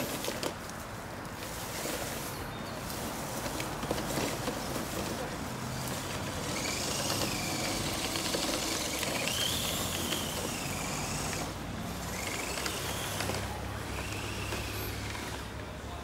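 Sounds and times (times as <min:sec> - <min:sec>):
toy truck electric motor whining: 0:03.0 - 0:15.6.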